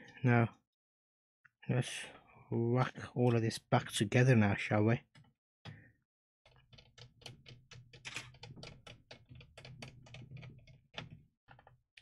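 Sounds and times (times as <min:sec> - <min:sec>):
small plastic clicks: 0:06.5 - 0:12.0.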